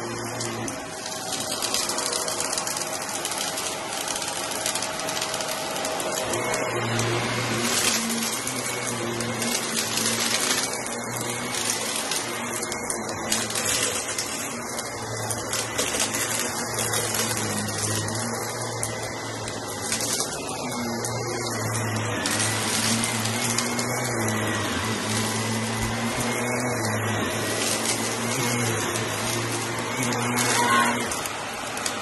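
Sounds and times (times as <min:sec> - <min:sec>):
debris crackling in vacuum: 0:00.0 - 0:32.0
vacuum cleaner running: 0:00.0 - 0:32.0.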